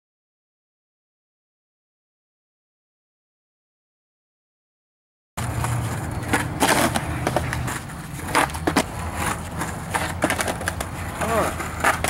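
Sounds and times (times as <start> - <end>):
skateboard clacking on concrete ledge: 5.4 - 12.0
skateboard wheels rolling on bricks: 5.4 - 12.0.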